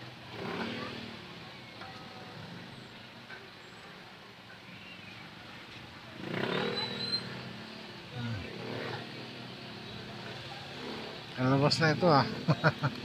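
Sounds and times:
motorcycle engine revving: 0.0s - 1.6s, 6.1s - 13.0s
background traffic noise: 0.0s - 13.0s
motorcycle engine winding down: 6.2s - 7.6s.

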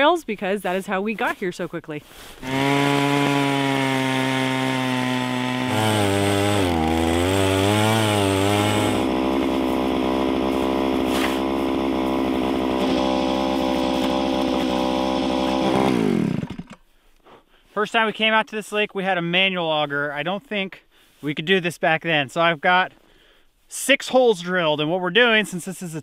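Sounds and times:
ice auger engine running: 2.4s - 16.8s.

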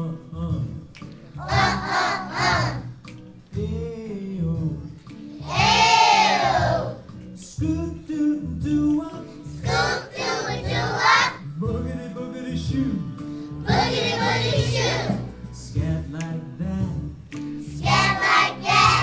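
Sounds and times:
backing music with bass line: 0.0s - 19.0s
children singing: 1.4s - 2.9s, 5.4s - 7.0s, 9.6s - 11.4s, 13.7s - 15.3s, 17.8s - 19.0s.

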